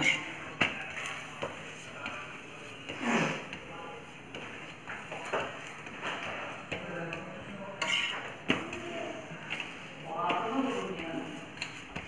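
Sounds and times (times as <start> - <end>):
spatula scraping on griddle: 0.0 - 1.9, 7.5 - 12.0.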